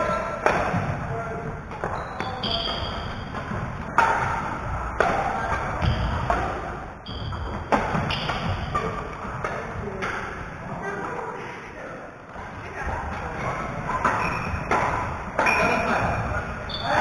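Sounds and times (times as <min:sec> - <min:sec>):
sneakers squeaking on gym floor: 0:01.6 - 0:04.9, 0:05.5 - 0:06.4, 0:07.0 - 0:09.4, 0:12.3 - 0:17.0
racquet striking shuttlecock: 0:01.7 - 0:10.4, 0:14.0 - 0:15.6.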